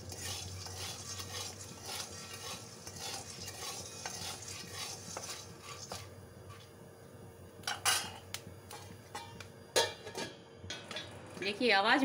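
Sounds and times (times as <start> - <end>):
metal spatula scraping pan: 0.0 - 6.6
corn sizzling in butter: 0.0 - 6.8.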